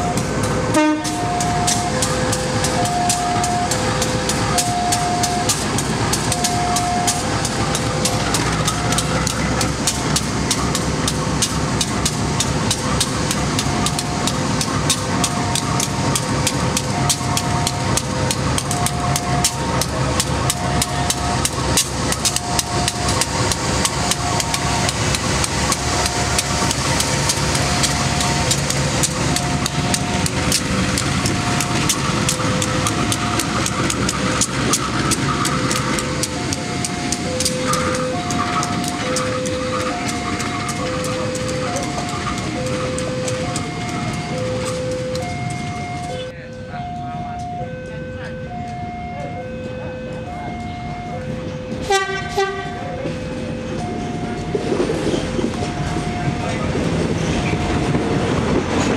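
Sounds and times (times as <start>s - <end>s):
level crossing alarm two-tone: 0.0s - 11.5s, 12.6s - 58.0s
diesel locomotive running: 0.0s - 58.9s
rapid sharp ticking: 0.2s - 46.2s.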